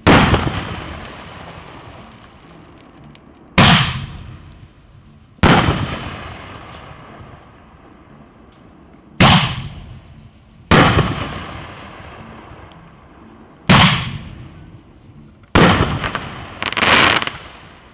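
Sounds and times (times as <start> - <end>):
fireworks bangs with echo: 0.0 - 1.9, 3.6 - 4.4, 5.4 - 7.1, 9.2 - 9.9, 10.7 - 12.0, 13.7 - 14.4, 15.6 - 17.6.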